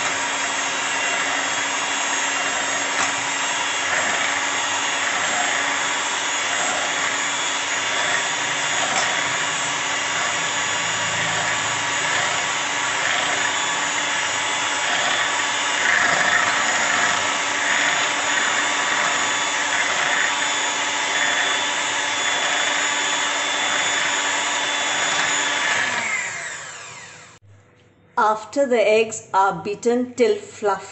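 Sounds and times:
electric hand mixer whisking: 0:00.0 - 0:27.4.

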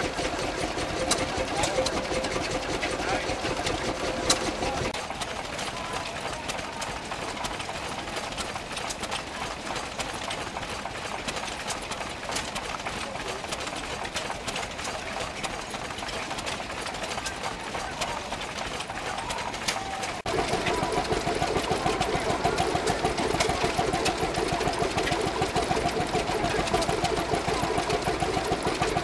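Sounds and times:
stationary engine running: 0:00.0 - 0:29.0.

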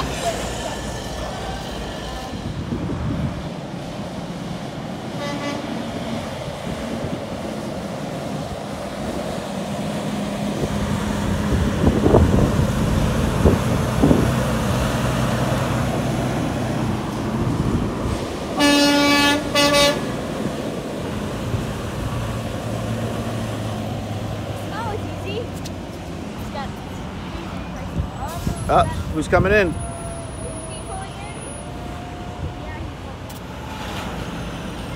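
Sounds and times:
diesel truck engines passing: 0:00.0 - 0:34.9
truck horn blasts: 0:05.2 - 0:05.8, 0:18.6 - 0:20.1.

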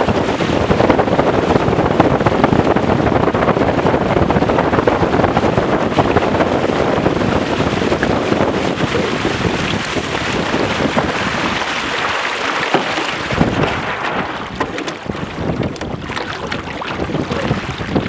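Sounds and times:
water splashing along hulls: 0:00.0 - 0:18.0
wind buffeting microphone: 0:00.0 - 0:18.0
knocks and clicks: 0:12.6 - 0:13.7, 0:14.5 - 0:17.0.

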